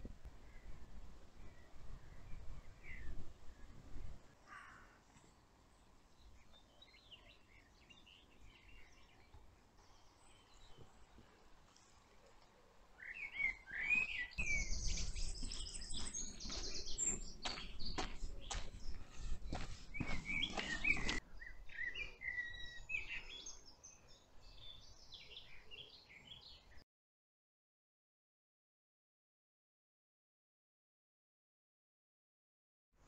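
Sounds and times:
birds chirping and trilling: 0:04.4 - 0:11.6, 0:12.9 - 0:26.8.

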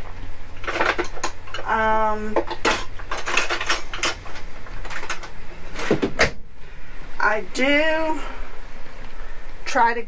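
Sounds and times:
cutlery clattering in a drawer: 0:00.6 - 0:01.6, 0:02.5 - 0:06.0.

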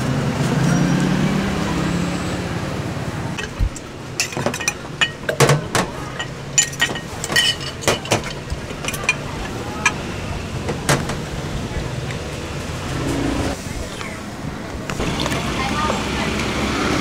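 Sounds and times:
metal spoon clinking against glass: 0:04.2 - 0:05.3, 0:06.1 - 0:09.2.

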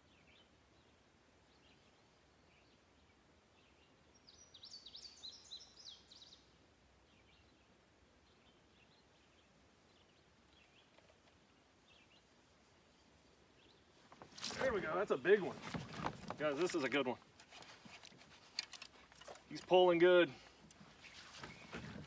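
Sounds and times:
soft bird chirps: 0:00.0 - 0:14.2, 0:21.0 - 0:22.0
songbird calling: 0:00.0 - 0:15.4, 0:21.0 - 0:22.0.

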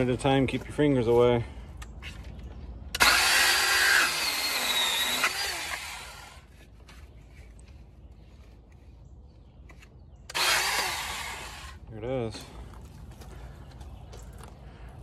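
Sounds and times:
power saw cutting plastic pipe: 0:02.9 - 0:06.5, 0:10.3 - 0:11.8.

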